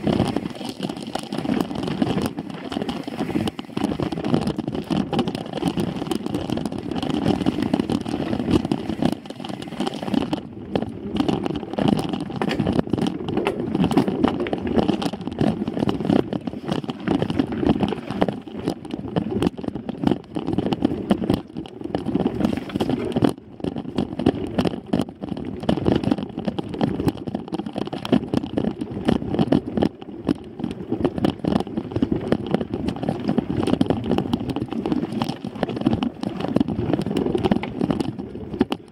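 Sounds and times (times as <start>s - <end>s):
bike rattling over bumps: 0.0s - 38.9s
bike tyres rumbling on dirt: 0.0s - 38.9s.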